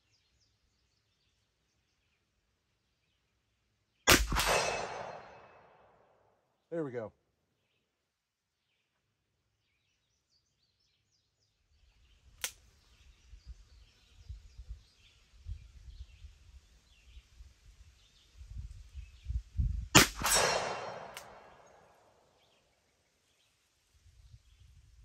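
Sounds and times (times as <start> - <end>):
revolver shot: 4.1 - 5.5, 20.0 - 21.6
sharp click: 12.4 - 12.6, 20.0 - 21.8.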